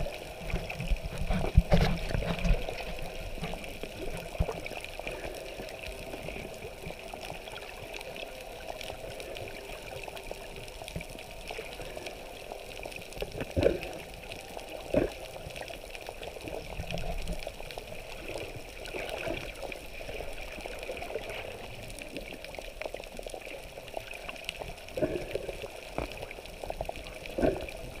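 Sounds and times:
muffled underwater rush and gurgle: 0.0 - 28.0.

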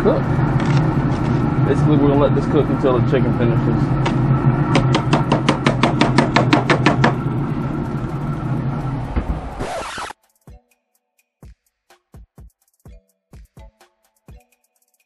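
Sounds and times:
low mechanical hum: 0.0 - 10.2
drum beat: 11.4 - 14.4.

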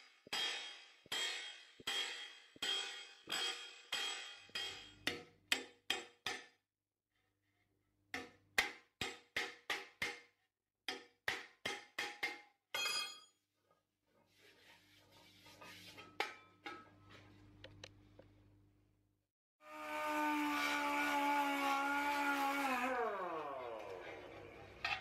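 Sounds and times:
hammer striking steel sheet: 0.0 - 6.5.

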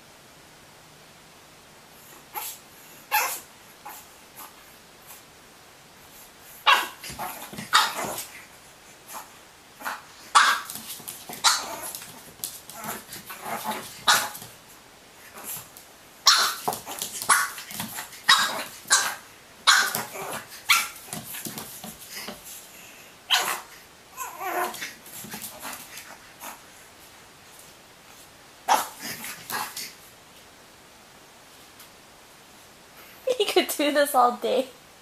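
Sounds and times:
puppy yapping: 2.3 - 4.0, 6.6 - 8.3, 9.8 - 12.1, 16.2 - 21.2, 23.3 - 24.9
puppy crying: 3.1 - 3.4, 23.3 - 24.9.

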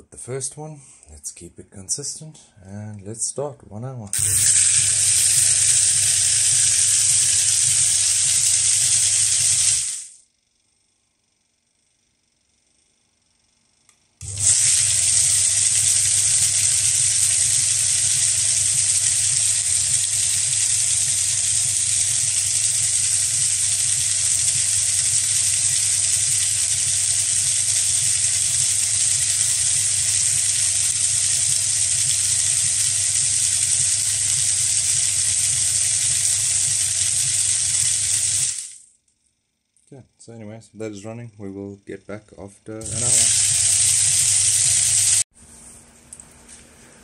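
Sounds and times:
motor low hum: 12.5 - 38.4.

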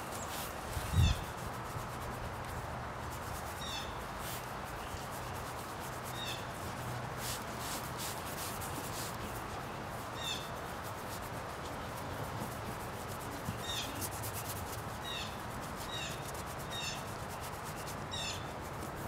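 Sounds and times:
paint scrubbing on board: 0.0 - 19.0.

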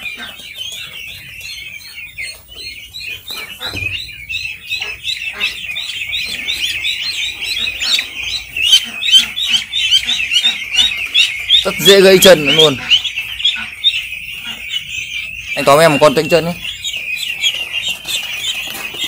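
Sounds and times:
ducklings peeping: 0.0 - 19.0.

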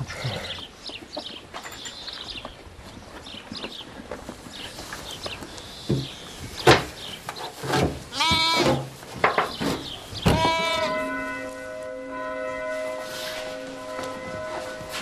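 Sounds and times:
sheep bleating: 8.1 - 8.8, 10.3 - 11.1
ringing tone: 10.8 - 15.0.

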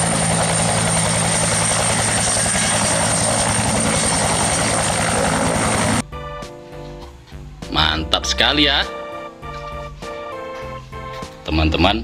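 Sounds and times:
helicopter rotor beat: 0.0 - 6.0
helicopter turbine whine: 0.0 - 6.0.

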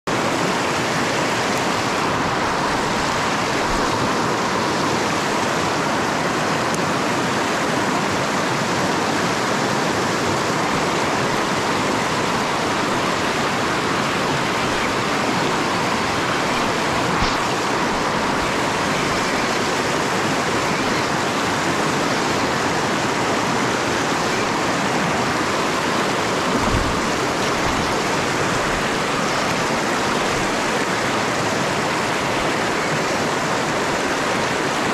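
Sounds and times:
river water rushing over rocks: 0.1 - 34.9.

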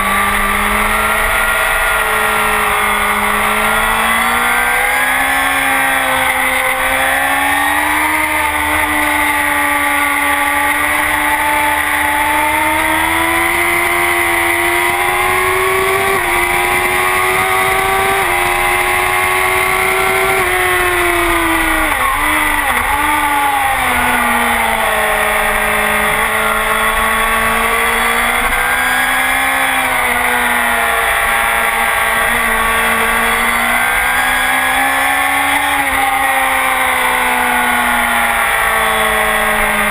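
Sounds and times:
motorcycle engine running hard: 0.0 - 39.9
low rush of wind: 14.2 - 29.0.

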